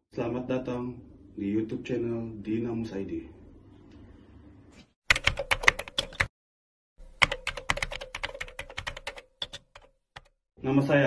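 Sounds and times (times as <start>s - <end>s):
keyboard typing clicks: 5.1s - 6.3s, 7.2s - 10.3s.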